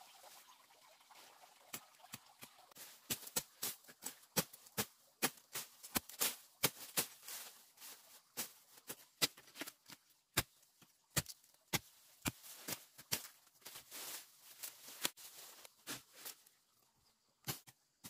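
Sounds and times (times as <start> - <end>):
plants rustling: 2.7 - 10.0, 12.2 - 16.6.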